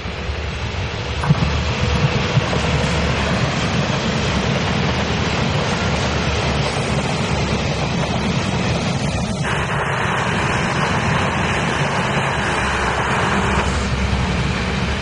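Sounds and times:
diesel train rumbling past: 0:00.0 - 0:15.0.

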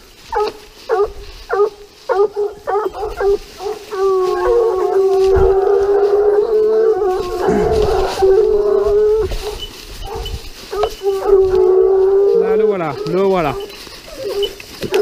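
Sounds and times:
hounds baying: 0:00.2 - 0:15.0
dogs yelping: 0:00.3 - 0:15.0.

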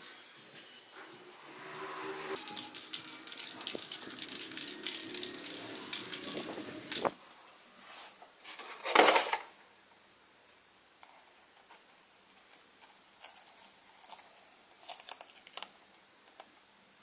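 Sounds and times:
spray paint hissing: 0:00.0 - 0:07.2.

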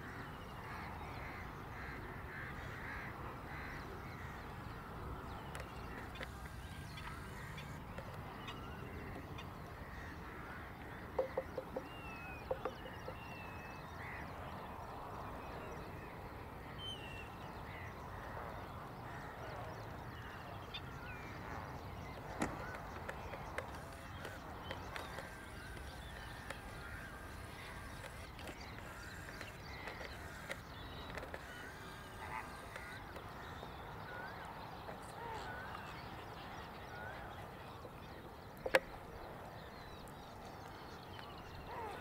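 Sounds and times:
birds calling: 0:00.0 - 0:14.9, 0:16.6 - 0:42.0
low background noise: 0:00.0 - 0:42.0.

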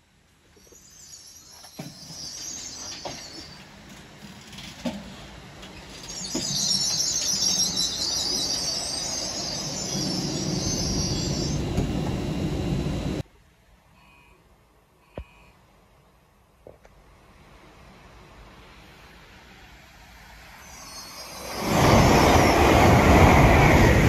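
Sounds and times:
wheels squealing on rails: 0:00.6 - 0:13.2, 0:20.0 - 0:24.0
low rumble: 0:09.6 - 0:13.2.

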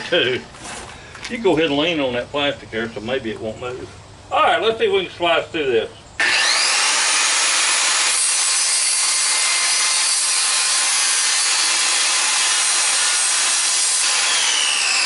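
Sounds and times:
circular saw cutting plastic: 0:06.2 - 0:15.0.

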